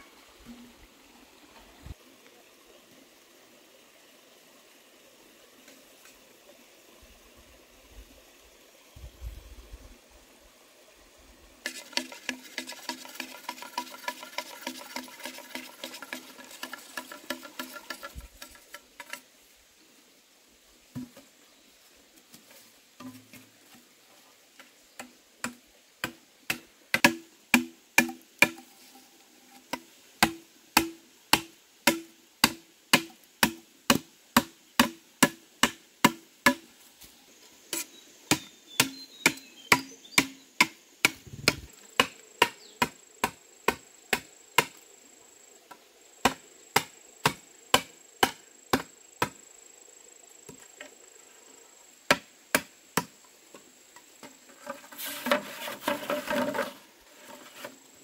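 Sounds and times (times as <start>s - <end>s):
hand tool chopping wood: 11.7s - 19.2s, 25.0s - 28.7s, 29.7s - 36.6s, 38.3s - 44.8s, 46.2s - 49.4s.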